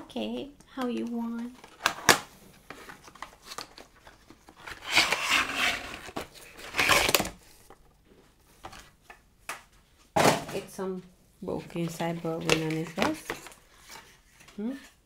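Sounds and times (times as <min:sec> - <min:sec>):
packaging rustling and crinkling: 0:01.4 - 0:07.9, 0:11.8 - 0:14.6
packaging tearing: 0:04.7 - 0:07.4.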